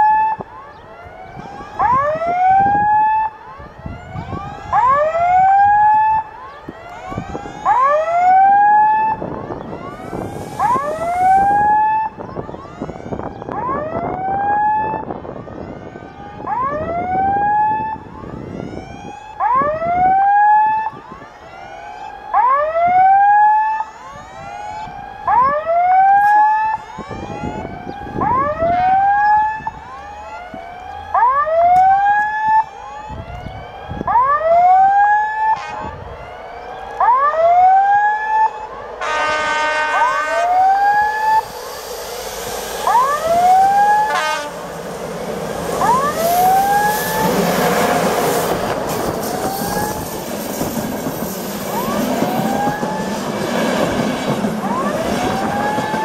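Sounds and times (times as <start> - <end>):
rising electronic warning whoop: 0.0 - 20.9, 21.6 - 56.0
electric train approaching: 9.1 - 12.5, 38.6 - 56.0
steady multi-tone sound: 40.0 - 56.0.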